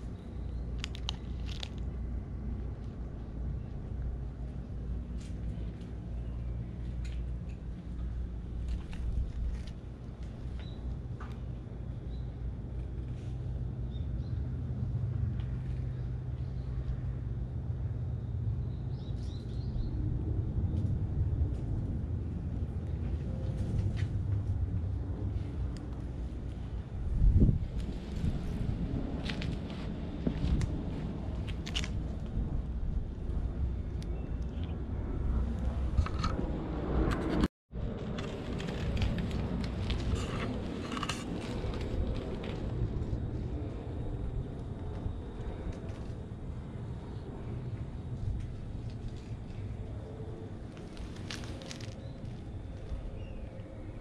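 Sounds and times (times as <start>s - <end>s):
light crackles and rustles: 0.0s - 11.8s, 20.7s - 32.4s, 37.1s - 53.9s
low outdoor rumble: 0.0s - 54.0s.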